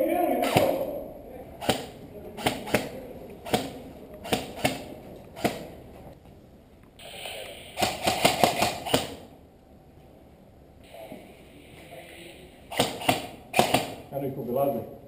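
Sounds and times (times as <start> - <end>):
airsoft rifle shots: 0.4 - 1.0, 1.6 - 5.8, 7.0 - 9.3, 12.7 - 14.1.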